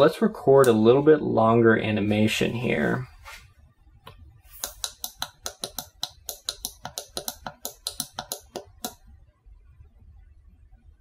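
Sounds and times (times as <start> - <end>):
solenoids clacking: 4.6 - 9.0.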